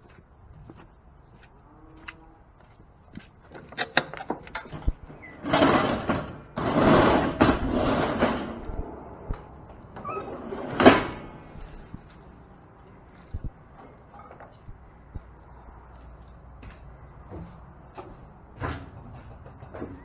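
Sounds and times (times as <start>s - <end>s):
metal gate scraping: 3.7s - 11.6s.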